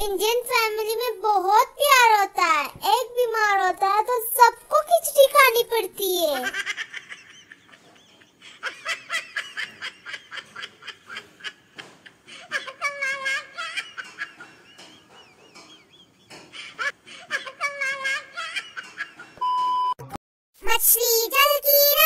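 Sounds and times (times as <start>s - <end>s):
person laughing: 6.5s - 19.4s.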